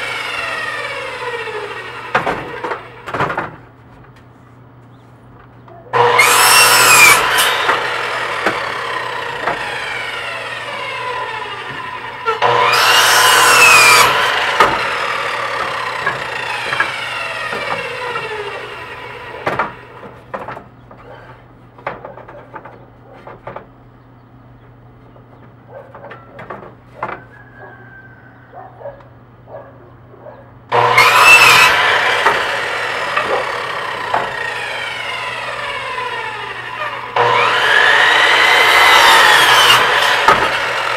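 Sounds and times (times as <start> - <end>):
saw blade whine winding down: 0.0 - 2.1, 6.0 - 19.4, 30.7 - 40.9
miter saw cutting wood: 0.0 - 3.2, 5.9 - 20.4, 30.7 - 40.9
lumber knocking and clattering: 21.7 - 23.8.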